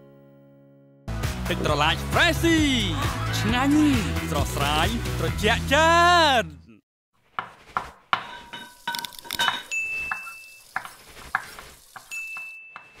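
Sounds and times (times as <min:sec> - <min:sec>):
utensils and dishes clinking: 0:08.2 - 0:13.0
sizzling hiss: 0:08.7 - 0:12.5.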